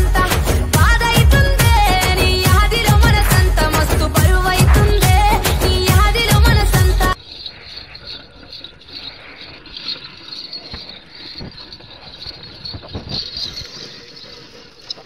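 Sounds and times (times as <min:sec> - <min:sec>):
high-pitched insect chirping: 0:07.1 - 0:15.0
faint outdoor rustle: 0:07.2 - 0:15.0.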